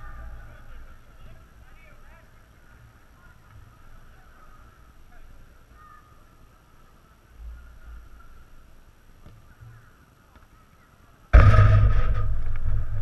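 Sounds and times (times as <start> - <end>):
low rumble: 11.4 - 13.0.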